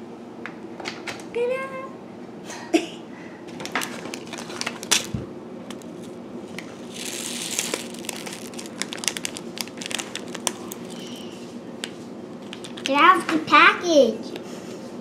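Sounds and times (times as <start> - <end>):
plastic packet crinkling: 3.6 - 11.3, 12.3 - 13.0.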